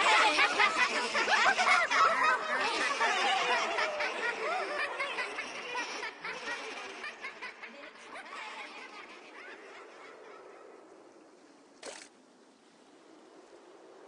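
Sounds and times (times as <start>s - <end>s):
sea water lapping: 8.5s - 14.0s.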